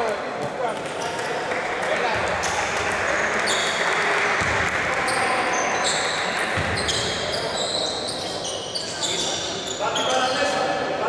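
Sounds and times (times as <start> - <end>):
voices echoing in gym: 0.0 - 11.0
sneakers squeaking on court: 5.1 - 10.6.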